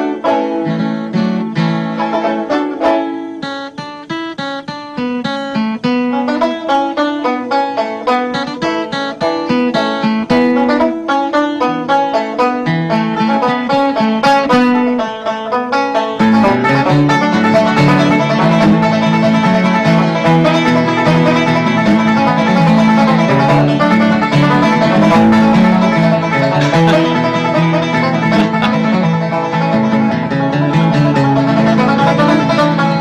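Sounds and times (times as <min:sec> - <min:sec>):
bluegrass banjo and guitar tune: 0:00.0 - 0:33.0.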